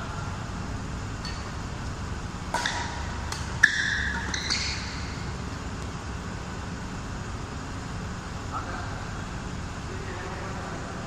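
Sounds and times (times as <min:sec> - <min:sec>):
racket striking shuttlecock: 0:02.5 - 0:05.2
court shoes squeaking: 0:02.5 - 0:05.6.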